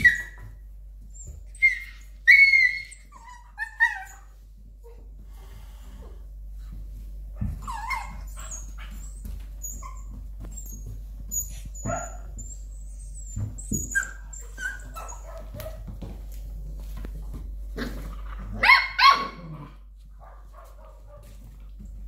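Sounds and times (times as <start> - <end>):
puppies yipping and squealing: 0.0 - 5.0, 7.4 - 15.9, 17.8 - 19.6.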